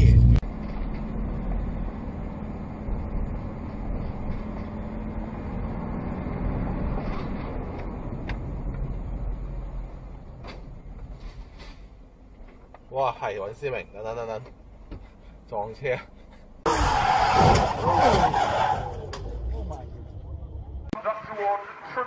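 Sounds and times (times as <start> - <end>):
car engine and road noise: 0.0 - 22.0.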